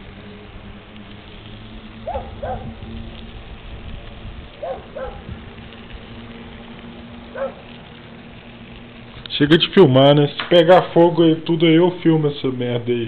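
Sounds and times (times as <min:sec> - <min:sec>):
steady low hum: 0:00.0 - 0:13.0
dog barking: 0:02.1 - 0:02.7, 0:04.6 - 0:05.3, 0:07.4 - 0:07.6.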